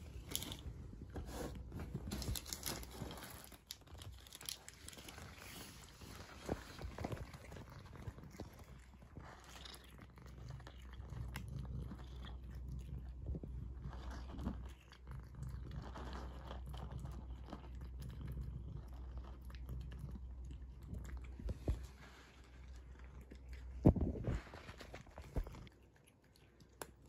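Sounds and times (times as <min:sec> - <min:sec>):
cat crunching dry kibble: 0:00.0 - 0:27.0.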